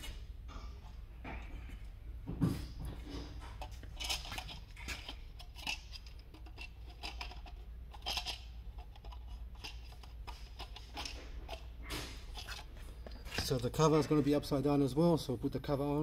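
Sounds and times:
plastic parts clicking and rattling: 0:03.1 - 0:13.6.

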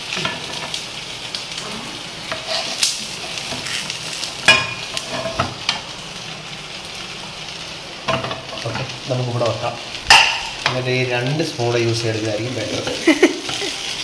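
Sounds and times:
fish parcels sizzling in a pan: 0:00.0 - 0:14.0
metal spoons scraping a pan: 0:02.3 - 0:05.5.

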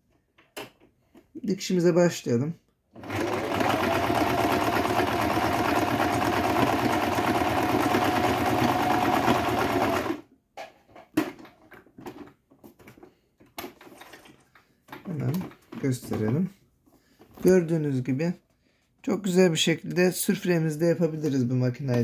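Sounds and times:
electric sewing machine running: 0:03.0 - 0:10.2.

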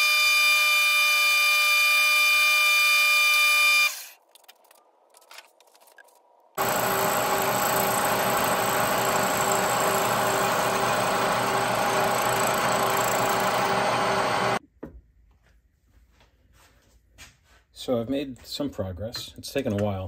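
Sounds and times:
milling machine saw cutting brass: 0:06.6 - 0:14.6.

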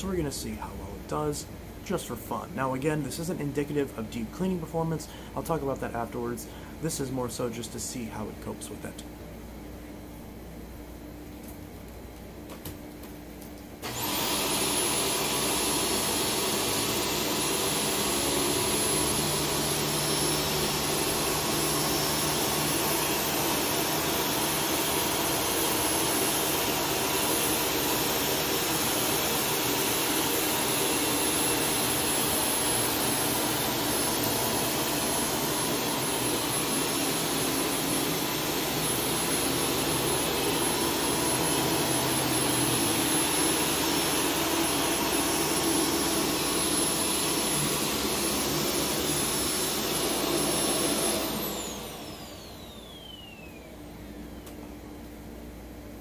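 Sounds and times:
vacuum cleaner motor whining: 0:13.8 - 0:54.8.

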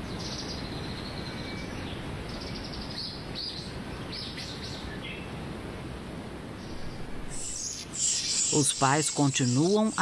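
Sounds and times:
low background noise: 0:00.0 - 0:10.0
birds chirping: 0:06.6 - 0:10.0.

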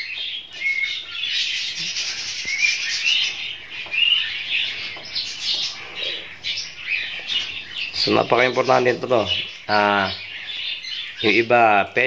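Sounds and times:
small birds chirping: 0:00.0 - 0:12.0.

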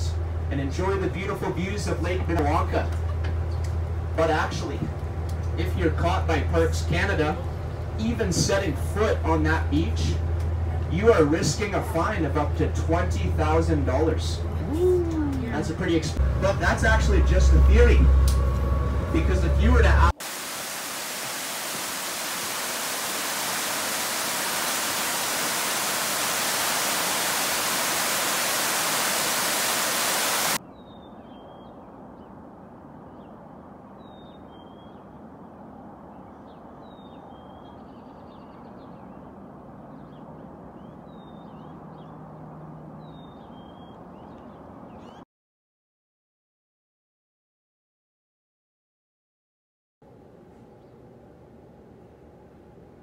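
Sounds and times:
loud rushing hiss: 0:20.1 - 0:30.6
bird chirping: 0:30.0 - 0:32.4, 0:34.0 - 0:35.2, 0:36.2 - 0:42.2, 0:43.0 - 0:45.2.

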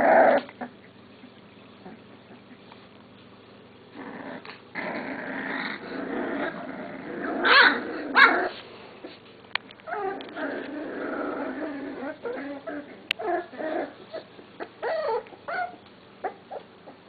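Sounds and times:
puppy growls: 0:00.0 - 0:01.0, 0:01.8 - 0:02.7, 0:03.9 - 0:09.2, 0:09.8 - 0:17.0
puppy yelps: 0:07.4 - 0:08.5, 0:12.2 - 0:17.0
puppy squeaks: 0:14.1 - 0:16.6.

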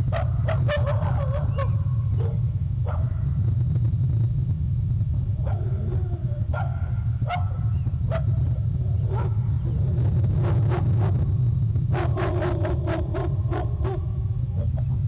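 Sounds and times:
steady low rumble: 0:00.0 - 0:15.0
animal calls: 0:00.2 - 0:02.4.

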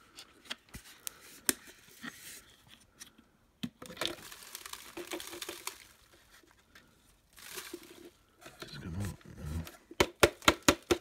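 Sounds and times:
rustling over plastic bag: 0:04.0 - 0:09.2.

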